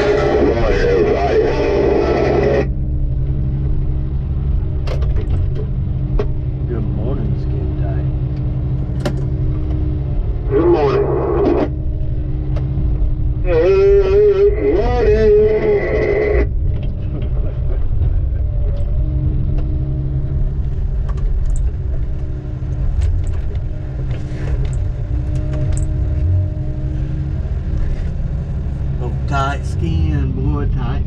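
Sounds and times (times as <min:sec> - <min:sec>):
wavering voice: 0:00.0 - 0:02.7, 0:13.4 - 0:16.5
diesel engine rumbling: 0:00.0 - 0:31.0.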